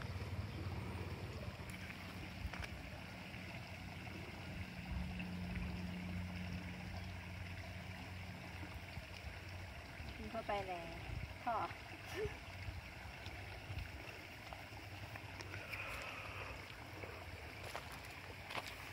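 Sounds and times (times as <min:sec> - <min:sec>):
low hum: 0:00.0 - 0:10.2.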